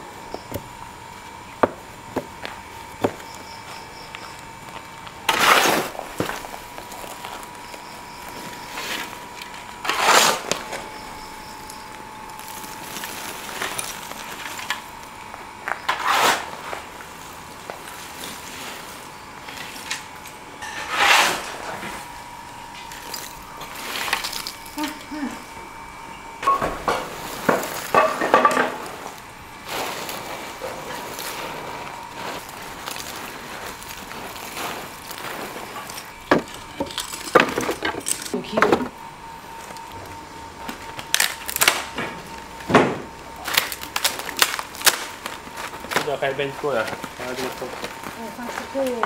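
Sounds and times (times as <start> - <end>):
metal shovel scraping ash: 5.2 - 15.0, 15.6 - 25.4, 26.5 - 38.6
metal clinks and knocks: 36.3 - 38.9.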